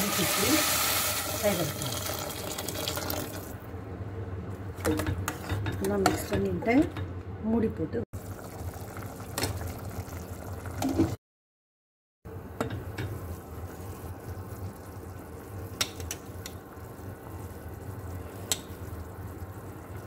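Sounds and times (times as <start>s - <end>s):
food simmering and bubbling: 1.8s - 3.6s, 8.2s - 11.2s, 12.8s - 20.0s.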